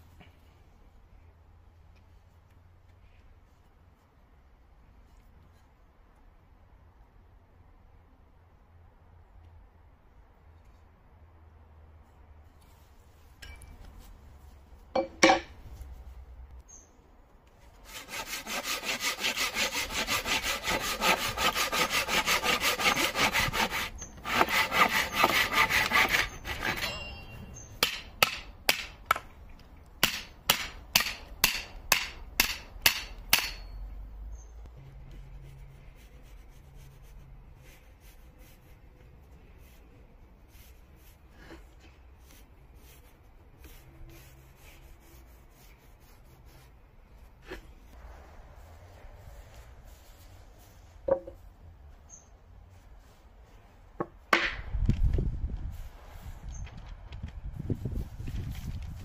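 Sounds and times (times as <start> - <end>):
hand saw cutting wood: 17.8 - 27.0.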